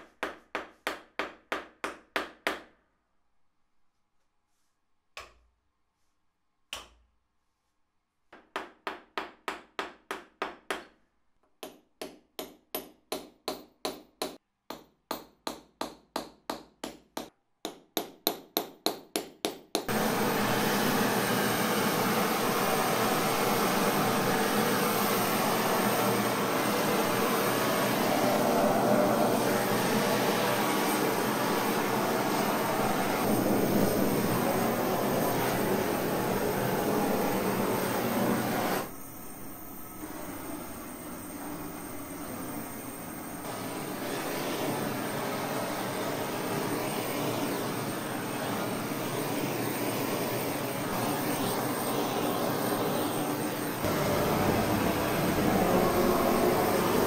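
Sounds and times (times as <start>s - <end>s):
gas torch flame: 19.9s - 57.0s.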